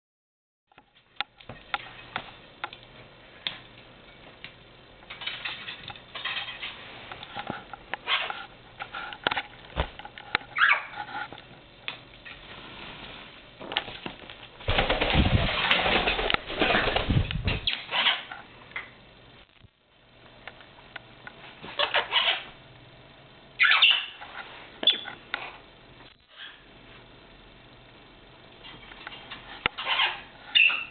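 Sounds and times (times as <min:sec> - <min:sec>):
parrot wingbeats: 0:13.9 - 0:18.4.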